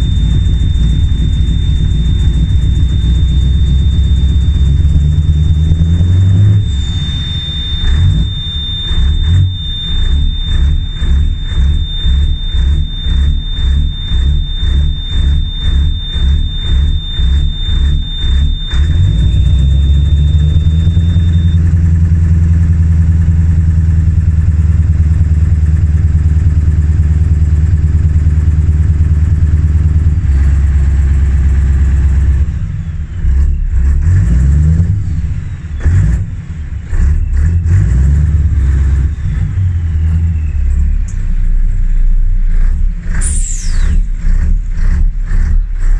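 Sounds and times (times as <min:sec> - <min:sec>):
short falling whistle: 0:00.0 - 0:21.8, 0:43.1 - 0:44.3
steady high-pitched tone: 0:00.0 - 0:33.2, 0:39.0 - 0:44.6
diesel truck engine revving: 0:00.0 - 0:45.9.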